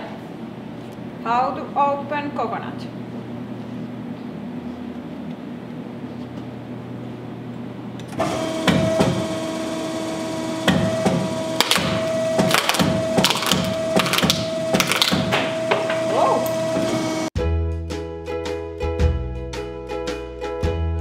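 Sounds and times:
machine low hum: 0:00.0 - 0:17.3
press whining: 0:07.5 - 0:17.3.

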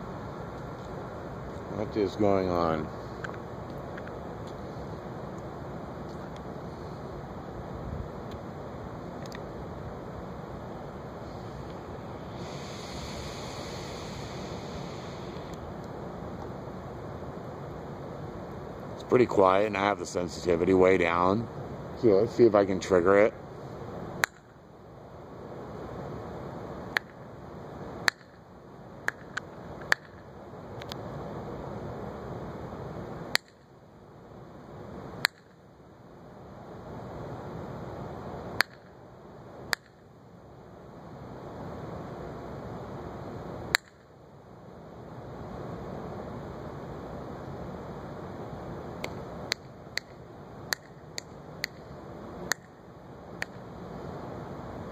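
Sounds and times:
steady background hiss: 0:00.0 - 0:54.9
finger snaps: 0:52.5 - 0:52.7.

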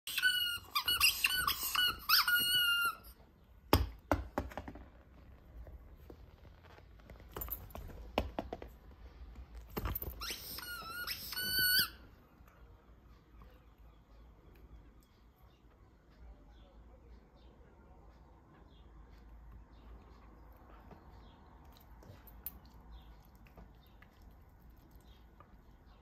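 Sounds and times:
squeaky rubber dog toys: 0:00.0 - 0:03.2, 0:09.8 - 0:12.2.

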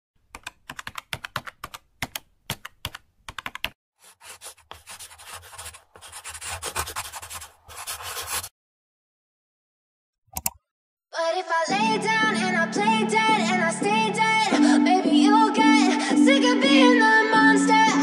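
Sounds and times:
keyboard typing clicks: 0:00.3 - 0:03.8, 0:10.3 - 0:10.6.

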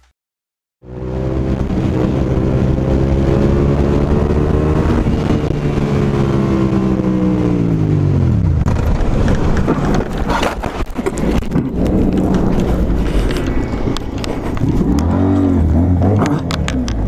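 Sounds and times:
motorcycle engine running: 0:00.8 - 0:17.0
motorcycle scraping and clattering: 0:08.5 - 0:17.0.

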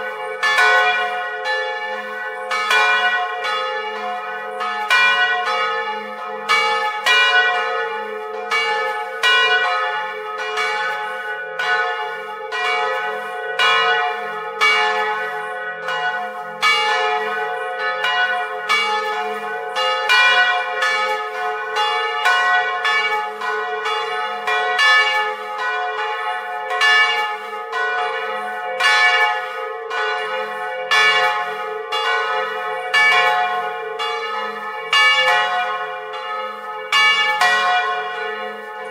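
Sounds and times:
church bells pealing: 0:00.0 - 0:38.9.

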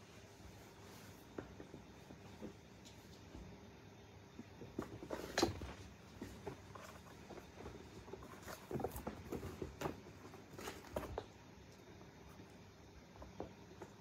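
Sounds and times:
kittens' paws thumping and scuffing: 0:00.4 - 0:03.7, 0:04.3 - 0:11.4.

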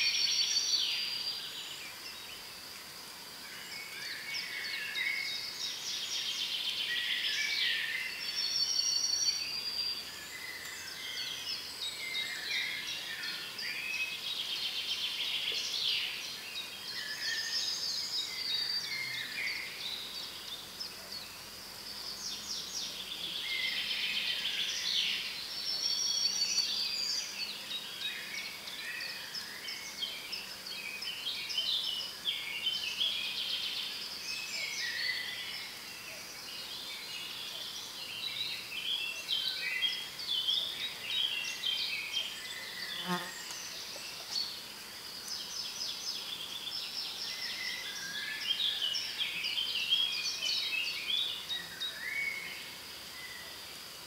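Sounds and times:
songbirds singing: 0:00.0 - 0:54.0.

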